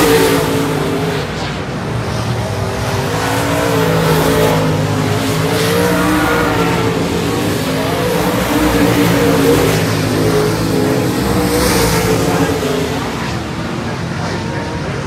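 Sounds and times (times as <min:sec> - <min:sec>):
race car engines at speed: 0:00.0 - 0:15.0.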